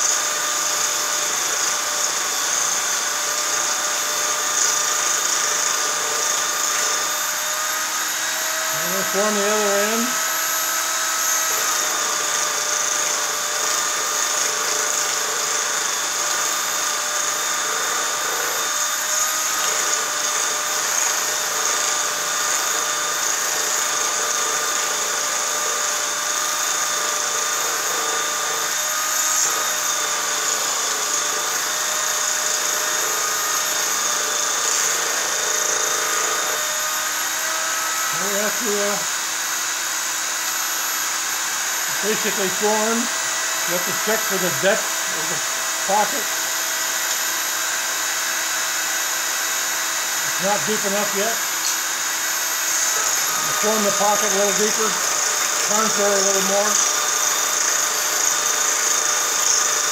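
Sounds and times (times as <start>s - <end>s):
electric motor whining: 0.0s - 59.9s
copper rubbing on spinning wheel: 37.3s - 39.2s, 50.0s - 57.1s.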